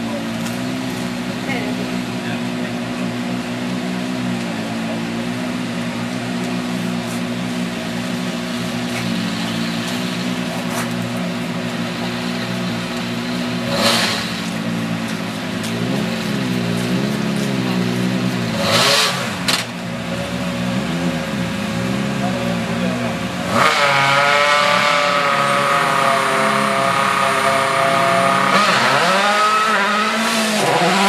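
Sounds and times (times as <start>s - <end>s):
car engine idling: 0.0s - 23.5s.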